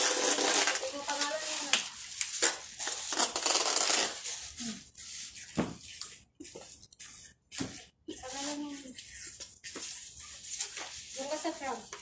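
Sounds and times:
plastic bags rustling: 0.0s - 4.8s.

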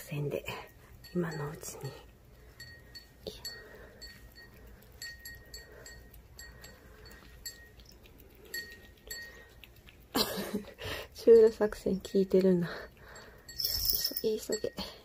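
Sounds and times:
light ringing clinks of bowl: 13.4s - 15.0s.

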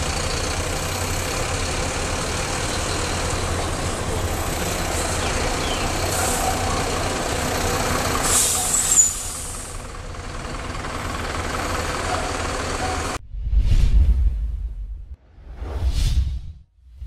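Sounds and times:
diesel engine running: 0.0s - 13.2s
whooshing transition effect: 13.2s - 17.0s.

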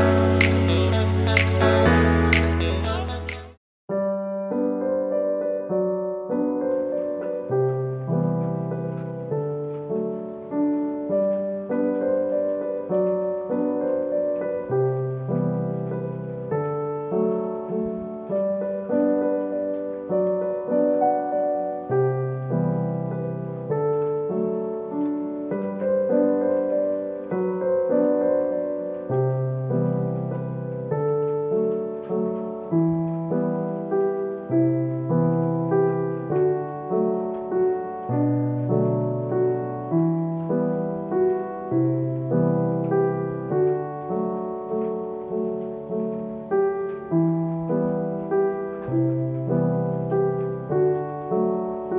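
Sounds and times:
piano music: 0.0s - 51.9s.

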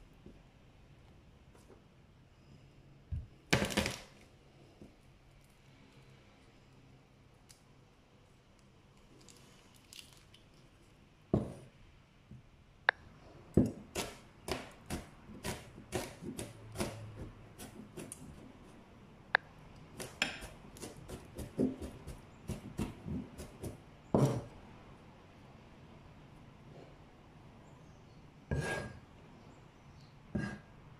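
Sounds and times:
knife chopping on cutting board: 13.6s - 18.2s, 20.0s - 24.5s.

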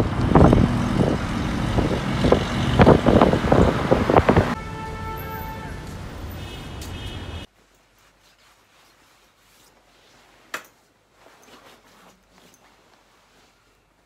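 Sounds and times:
wind on microphone: 0.0s - 4.6s
street traffic noise: 0.0s - 7.5s
clothing rustling: 7.5s - 14.0s.

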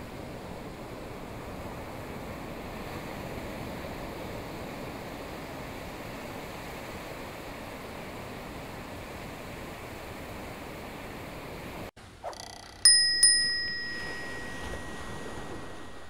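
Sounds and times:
steady rushing ambient noise: 12.8s - 16.0s.

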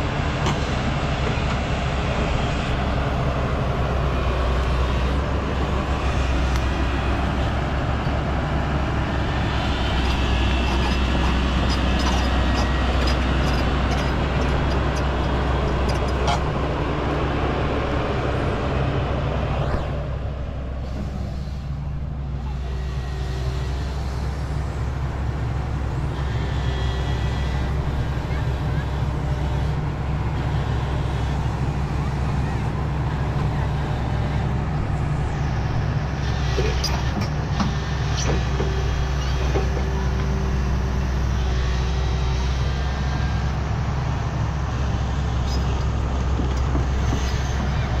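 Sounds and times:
excavator diesel engine running: 0.0s - 48.0s
steel tracks clanking: 9.8s - 16.9s, 45.2s - 48.0s.

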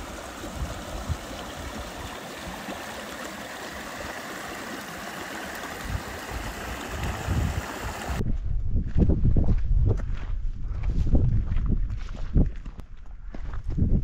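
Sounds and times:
creek rushing over rocks: 0.0s - 8.2s.

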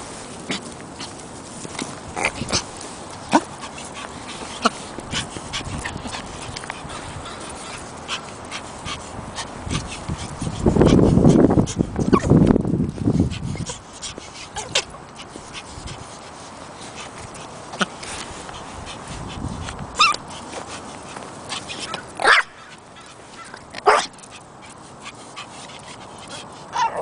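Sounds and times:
dog whimpering and yipping: 12.1s - 12.3s, 20.0s - 20.2s.

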